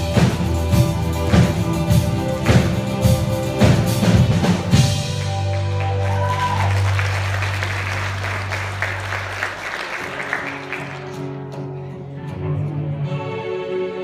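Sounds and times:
live band song: 0.0s - 13.1s
audience applauding: 4.8s - 11.9s.

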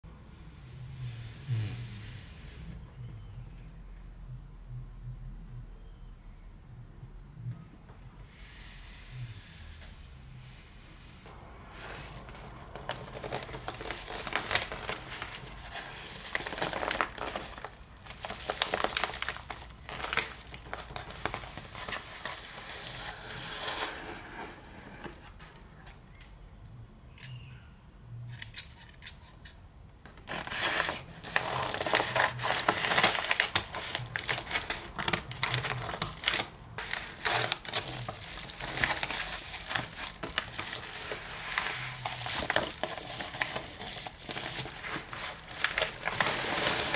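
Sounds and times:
padded paper mailer crinkling: 11.6s - 24.0s, 30.3s - 46.9s.

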